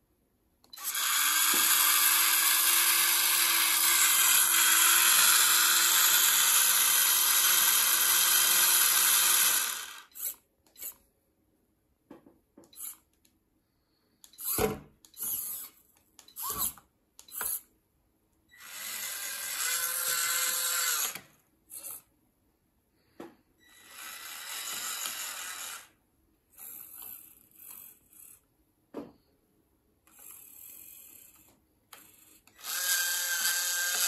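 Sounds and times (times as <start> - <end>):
small electric motors whirring: 0.7 - 11.0, 12.7 - 13.1, 14.3 - 17.7, 18.5 - 22.1, 23.6 - 26.0, 30.1 - 34.0.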